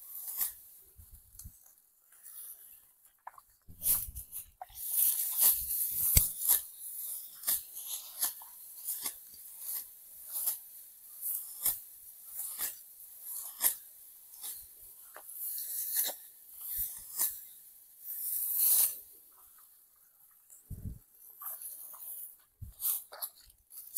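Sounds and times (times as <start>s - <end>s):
sickles cutting dry rice stalks: 0.0s - 0.6s, 3.7s - 14.7s, 15.4s - 17.4s, 18.0s - 19.0s
rustle of dry straw: 0.0s - 1.7s, 3.7s - 19.2s.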